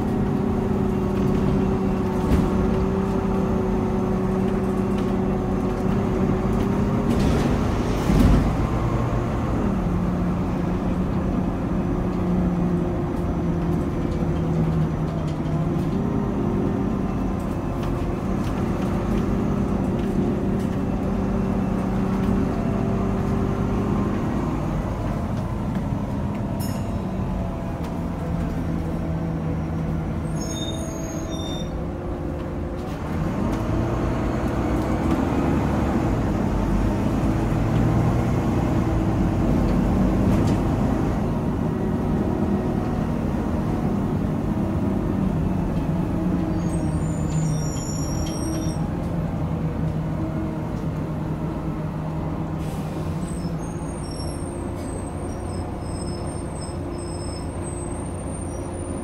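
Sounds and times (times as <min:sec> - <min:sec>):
bus engine: 0:00.0 - 0:59.0.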